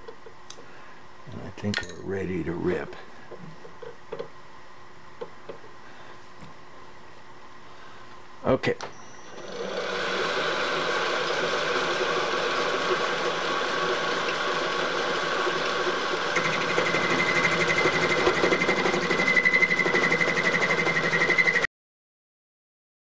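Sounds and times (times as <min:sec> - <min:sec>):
milling machine hum: 0:02.4 - 0:21.6
high pulsing cutter whine: 0:08.9 - 0:21.6.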